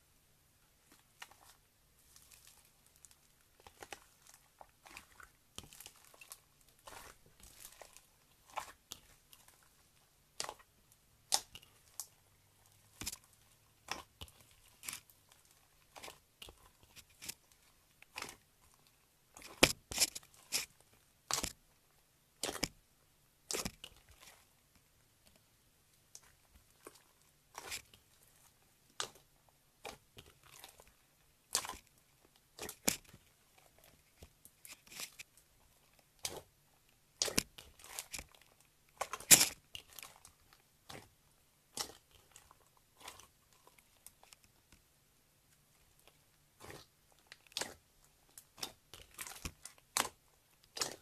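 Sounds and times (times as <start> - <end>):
slime crackling and popping: 1.2 - 9.7, 10.3 - 18.8, 22.4 - 22.8, 31.5 - 36.5, 37.1 - 44.5, 45.9 - 51.0.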